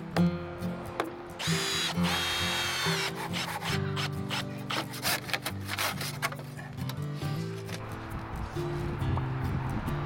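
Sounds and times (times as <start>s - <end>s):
background music: 0.0s - 10.0s
hand saw cutting wood: 1.5s - 6.5s.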